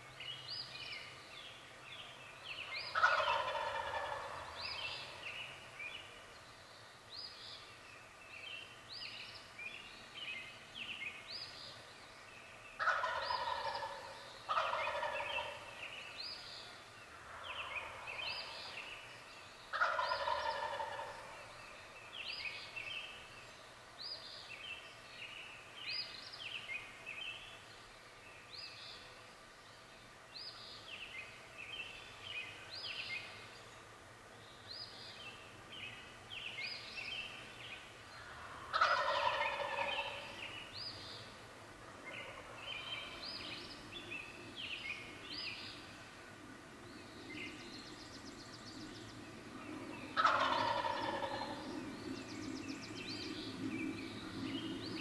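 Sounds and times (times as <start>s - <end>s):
songbirds chirping and singing: 0.0s - 55.0s
turkey gobbling: 2.9s - 4.5s, 12.8s - 15.7s, 17.3s - 18.6s, 19.7s - 21.3s, 38.7s - 40.4s, 50.2s - 51.7s.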